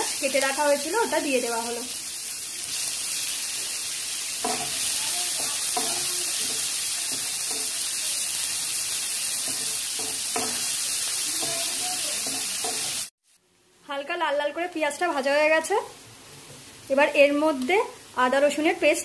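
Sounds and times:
onions sizzling in hot oil: 0.0s - 13.4s, 14.0s - 19.0s.

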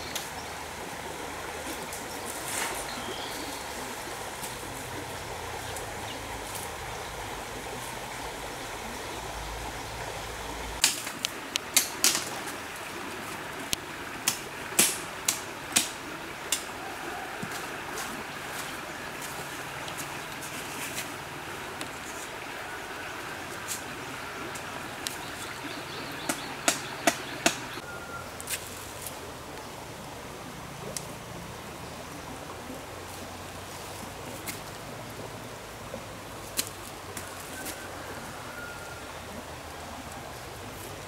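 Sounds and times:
stream rushing: 0.0s - 41.0s
bamboo poles knocking: 26.3s - 27.7s.

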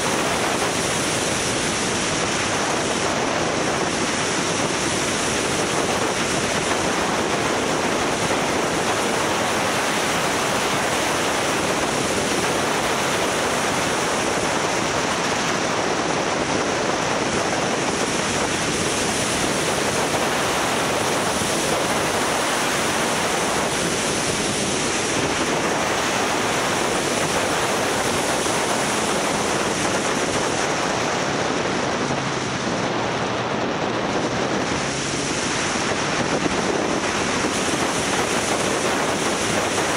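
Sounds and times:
road and engine noise: 0.0s - 39.9s
wind rushing over microphone: 0.0s - 39.9s.

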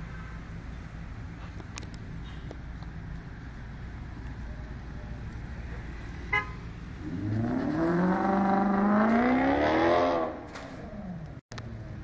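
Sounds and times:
car horn beep: 6.3s - 6.7s
car engine accelerating: 6.9s - 11.4s.

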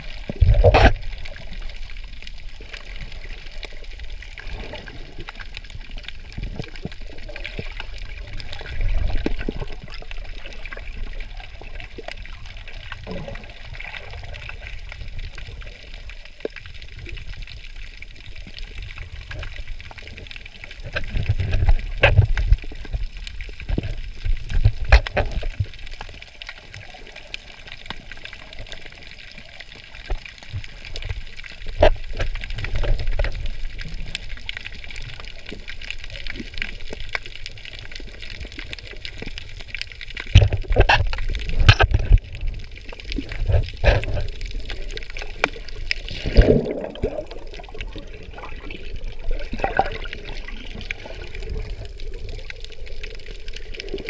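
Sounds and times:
water splashing: 0.0s - 54.0s
muffled water sloshing: 38.9s - 54.0s.

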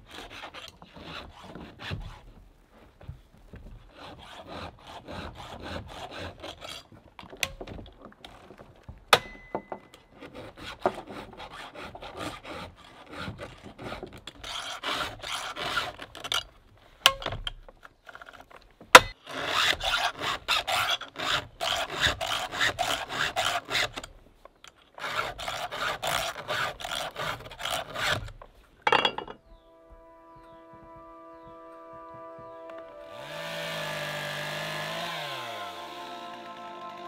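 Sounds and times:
file rasping on saw chain: 0.0s - 2.3s, 3.8s - 7.0s, 9.1s - 16.5s, 19.0s - 24.2s, 25.0s - 29.3s, 33.1s - 37.0s.

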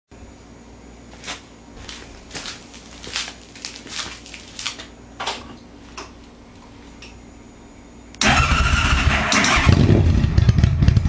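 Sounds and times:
faint steady hum: 0.1s - 9.0s
flip-flop footsteps on concrete: 1.1s - 4.9s.

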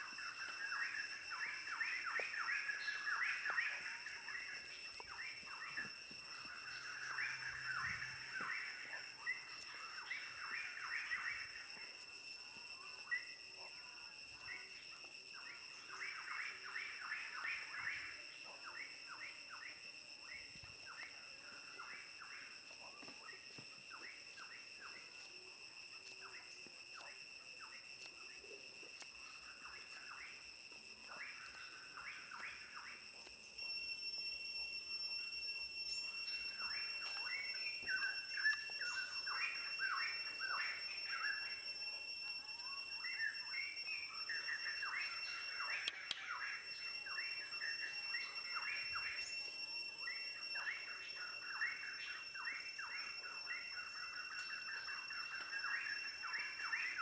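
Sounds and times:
birds chirping: 0.0s - 12.1s, 35.8s - 41.5s
high-pitched insect drone: 0.0s - 57.0s.

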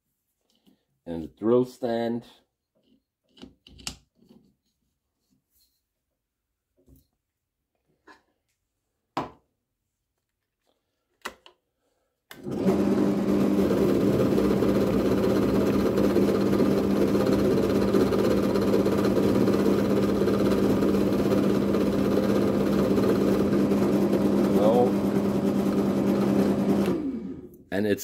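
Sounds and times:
drill press humming: 12.3s - 27.6s.

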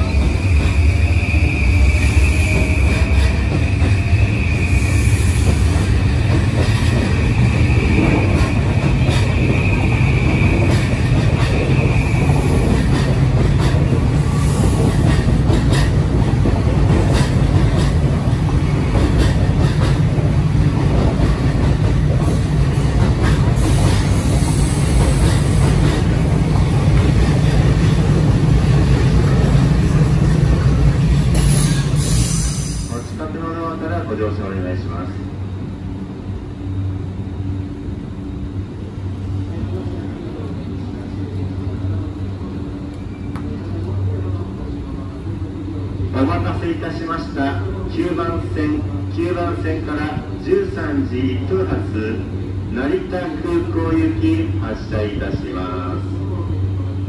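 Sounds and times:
rail joint clicks: 0.0s - 33.2s, 41.2s - 44.1s
train wheels rumbling: 0.0s - 57.0s.

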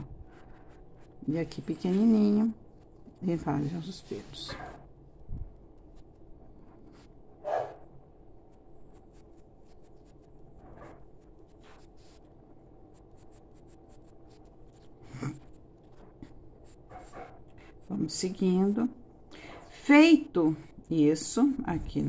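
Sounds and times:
pencil scratching on paper: 0.2s - 4.9s, 5.8s - 18.8s.

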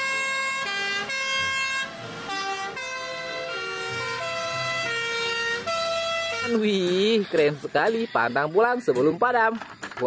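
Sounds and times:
two-tone fire engine sirens: 0.0s - 7.2s.

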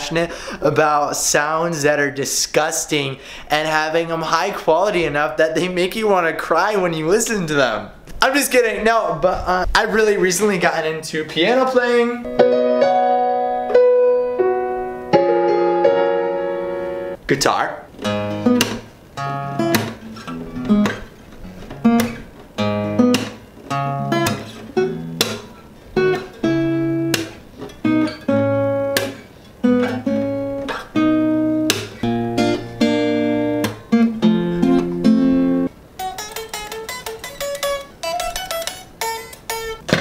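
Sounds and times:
acoustic guitar strumming: 12.2s - 17.2s, 17.9s - 40.0s
electric guitar picking: 12.2s - 17.2s, 17.9s - 40.0s.

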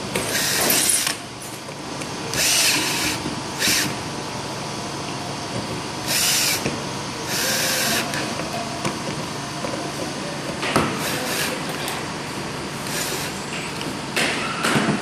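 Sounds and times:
cordless drill driving screws: 2.4s - 3.9s, 6.1s - 6.6s, 7.3s - 8.2s.

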